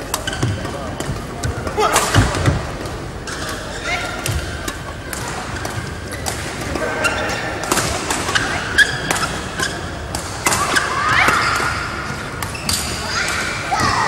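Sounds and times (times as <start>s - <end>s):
rackets striking shuttlecock: 0.0s - 13.8s
shoe squeaks: 8.3s - 9.9s, 12.5s - 13.1s.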